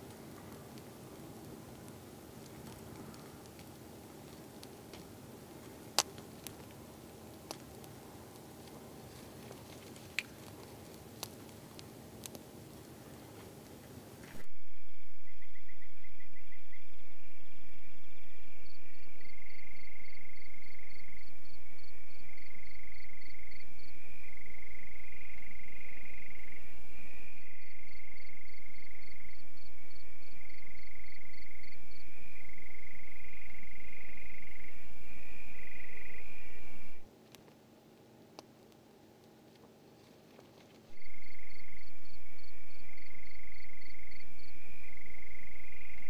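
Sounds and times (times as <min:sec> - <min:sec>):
frogs and insects trilling: 0:14.3 - 0:37.1, 0:40.9 - 0:46.0.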